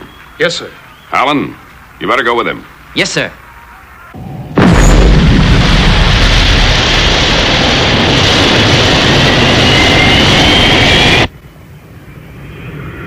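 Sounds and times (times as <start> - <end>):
jet engines roaring: 4.6 - 13.0.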